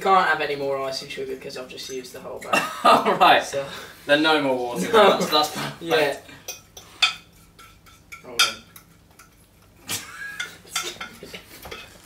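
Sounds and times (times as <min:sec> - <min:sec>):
utensil clinking against glass bowl: 0:06.5 - 0:09.7, 0:10.3 - 0:12.0.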